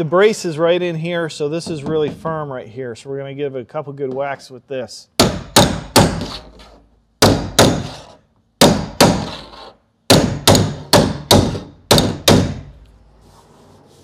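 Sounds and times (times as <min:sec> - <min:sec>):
hammer striking sheet metal: 0:07.2 - 0:12.7.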